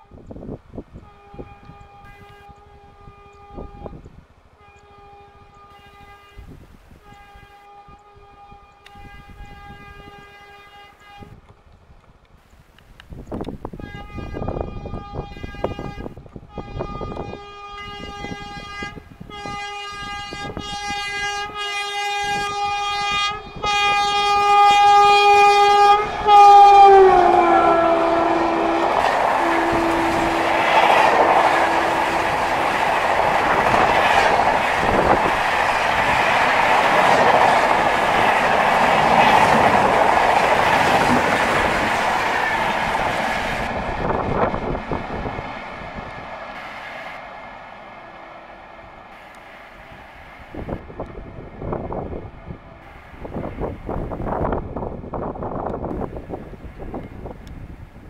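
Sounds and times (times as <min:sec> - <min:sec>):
train horn blasts: 0:00.0 - 0:11.5, 0:13.7 - 0:56.1
train coaches rushing and clattering: 0:18.0 - 0:57.7.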